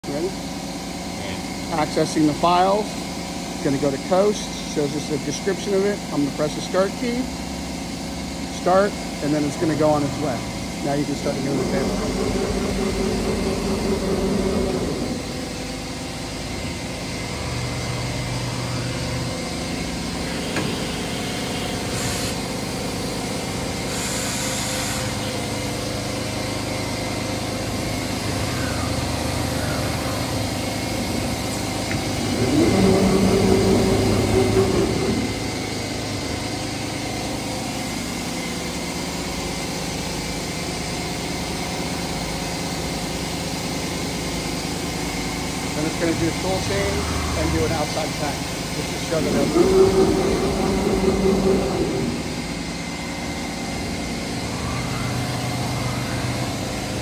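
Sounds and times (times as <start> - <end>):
constant machine hum: 0.0 - 57.0
cnc router motor tones: 8.5 - 39.6, 45.1 - 57.0.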